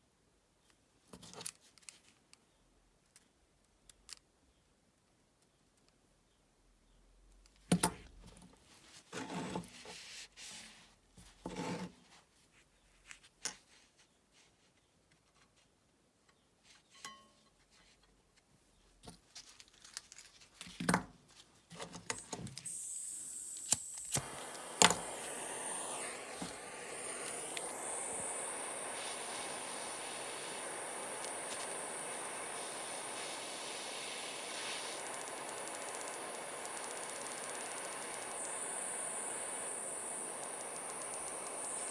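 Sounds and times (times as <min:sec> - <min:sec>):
gas torch hissing: 0:22.2 - 0:41.9
sharp clicks: 0:23.5 - 0:41.9.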